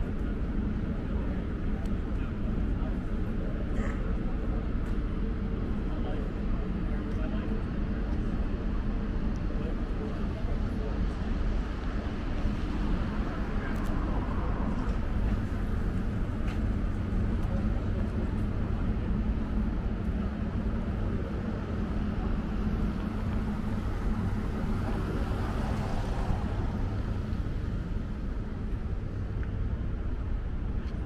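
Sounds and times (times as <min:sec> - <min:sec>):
faint droning hum: 0:00.0 - 0:31.0
low engine rumble: 0:00.0 - 0:31.0.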